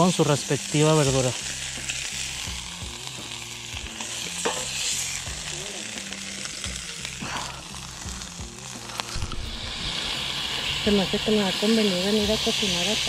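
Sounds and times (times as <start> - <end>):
hot oil sizzling in a skillet: 0.0 - 13.0
cooking utensil clicks and scrapes: 4.2 - 4.8.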